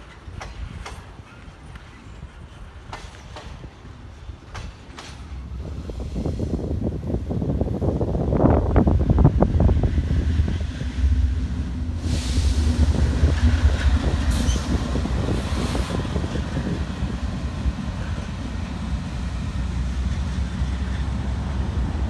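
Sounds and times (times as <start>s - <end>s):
diesel locomotives rumbling: 0.0s - 22.0s
brief hissing: 12.0s - 12.9s.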